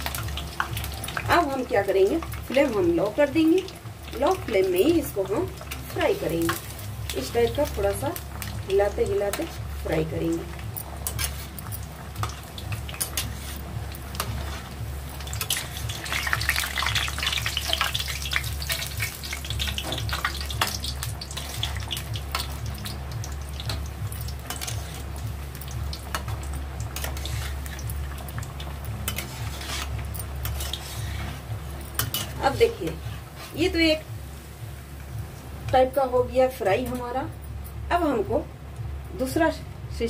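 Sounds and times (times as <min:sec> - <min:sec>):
food sizzling in hot oil: 0:00.0 - 0:38.2
low steady hum: 0:00.0 - 0:40.0
spatula scraping pan: 0:11.0 - 0:14.8, 0:17.2 - 0:22.6, 0:24.4 - 0:25.1, 0:27.0 - 0:27.8, 0:29.0 - 0:33.6.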